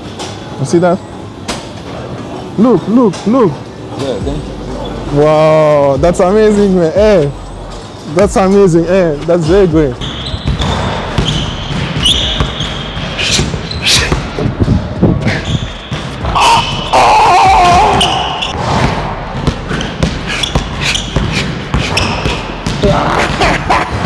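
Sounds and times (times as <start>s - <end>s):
sneakers squeaking: 3.8s - 5.2s, 6.5s - 24.0s.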